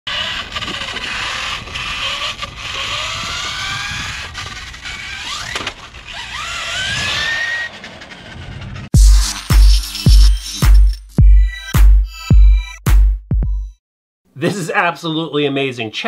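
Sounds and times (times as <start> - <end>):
rc car motor whining: 0.1 - 11.0.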